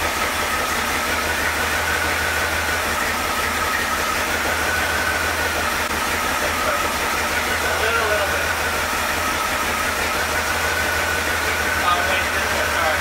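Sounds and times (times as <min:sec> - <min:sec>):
engine running steadily: 0:00.0 - 0:13.0.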